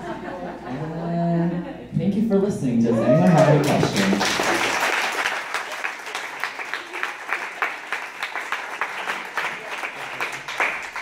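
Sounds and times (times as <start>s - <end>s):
audience applauding: 3.0s - 11.0s.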